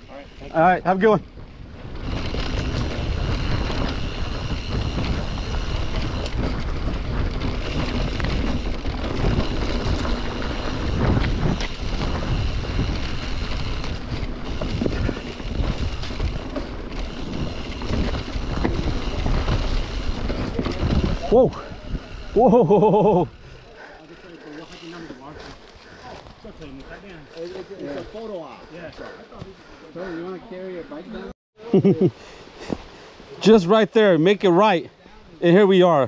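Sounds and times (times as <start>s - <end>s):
bike tyre noise: 0.0s - 31.3s
wind rushing over microphone: 1.1s - 22.4s
bike knocks and rattles: 1.9s - 21.4s.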